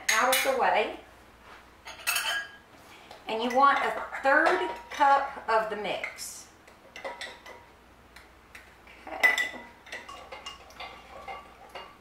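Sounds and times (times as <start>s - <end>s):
spoon clinking against glass: 1.9s - 2.6s.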